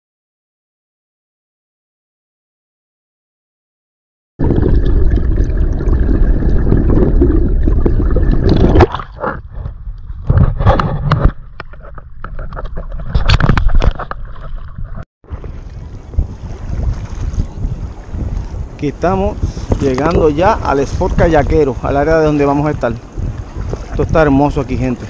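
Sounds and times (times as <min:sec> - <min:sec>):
water splashes: 0:04.4 - 0:10.3, 0:11.2 - 0:25.0
muffled underwater water rushing: 0:04.4 - 0:25.0
water sloshing on camera: 0:04.5 - 0:25.0.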